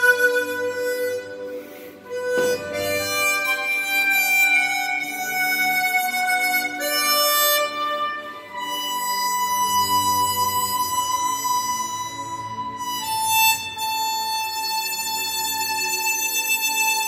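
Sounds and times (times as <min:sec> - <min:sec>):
harmonica slow melody: 0:00.0 - 0:17.0.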